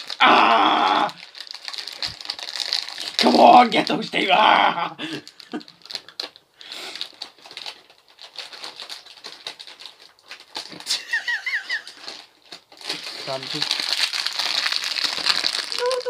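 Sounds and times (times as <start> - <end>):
snack packet crinkling: 0.0 - 4.2, 5.0 - 16.0
person giggling: 4.6 - 5.7, 10.8 - 12.2.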